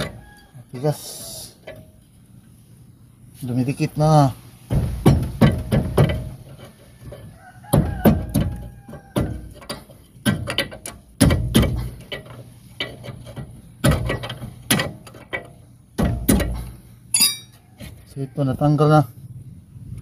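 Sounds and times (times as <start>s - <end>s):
pry tool knocking and scraping metal: 4.7s - 17.6s.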